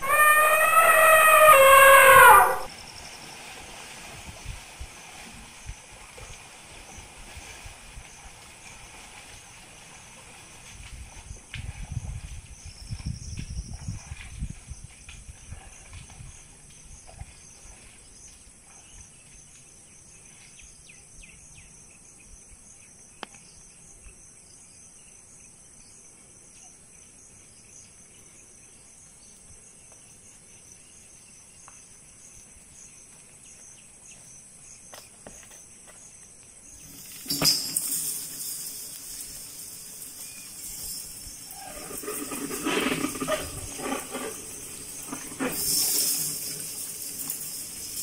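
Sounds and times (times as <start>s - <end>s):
insects trilling: 0.0s - 3.3s, 27.7s - 48.0s.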